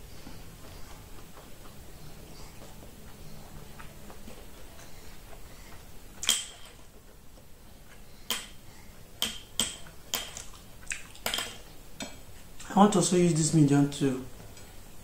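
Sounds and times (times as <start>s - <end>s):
person chewing: 0.0s - 8.2s, 9.9s - 11.3s.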